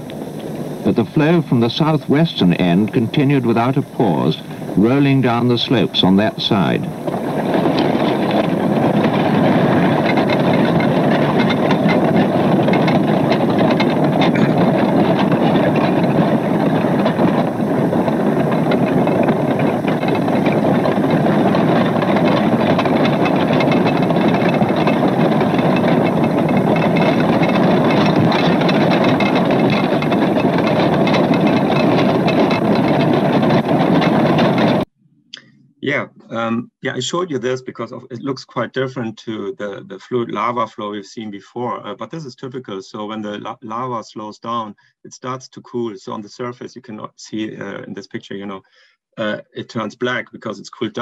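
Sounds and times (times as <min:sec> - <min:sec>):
low rumble: 0:00.0 - 0:34.9
lava blocks cracking and tumbling: 0:00.9 - 0:34.8.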